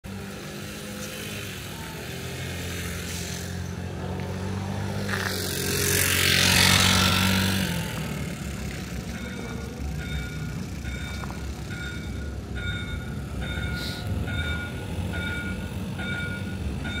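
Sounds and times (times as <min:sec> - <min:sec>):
steady low street hum: 0:00.0 - 0:17.0
motor vehicle passing: 0:00.1 - 0:09.2.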